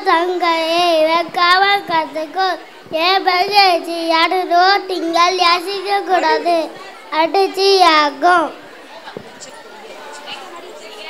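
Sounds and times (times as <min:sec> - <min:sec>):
child singing into a microphone: 0:00.0 - 0:08.6.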